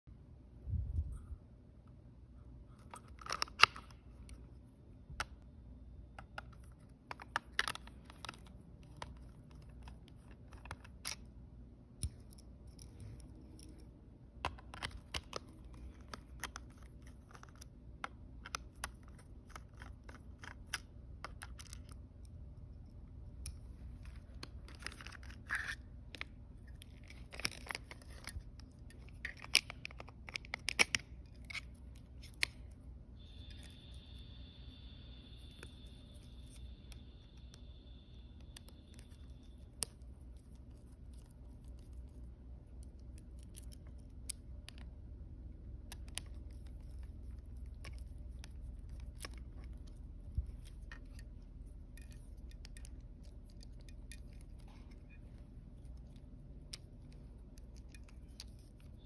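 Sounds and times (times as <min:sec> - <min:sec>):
plastic console clicks and scrapes: 0:06.2 - 0:11.3, 0:23.4 - 0:32.8.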